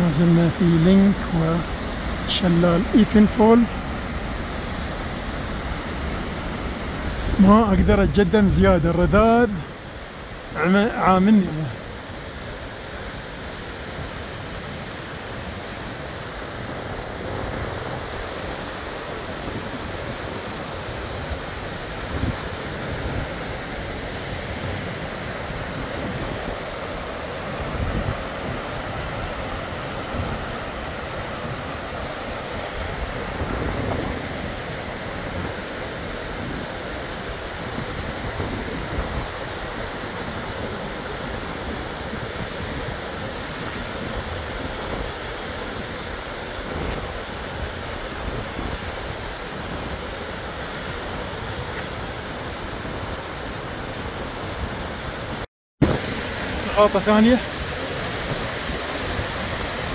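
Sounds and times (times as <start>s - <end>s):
waterfall rushing: 0.0s - 59.9s
wind buffeting microphone: 16.2s - 56.7s.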